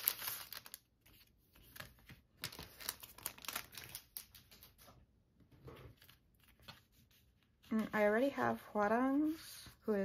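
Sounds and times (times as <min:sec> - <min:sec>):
plastic wrapper crinkling: 0:00.0 - 0:04.9.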